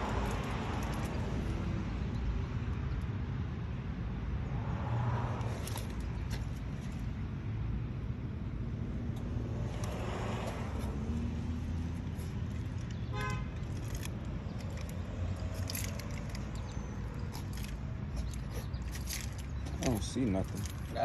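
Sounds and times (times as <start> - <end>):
car horn toot: 13.1 - 13.6.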